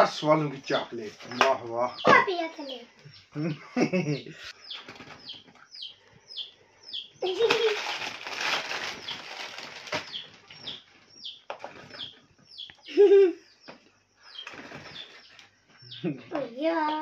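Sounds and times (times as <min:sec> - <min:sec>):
plastic wrapper crinkling: 0:07.3 - 0:10.5.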